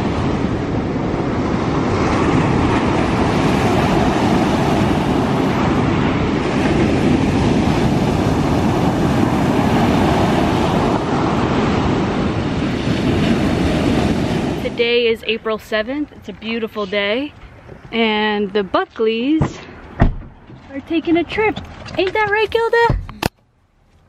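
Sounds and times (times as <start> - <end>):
ocean waves breaking on beach: 0.0 - 15.7.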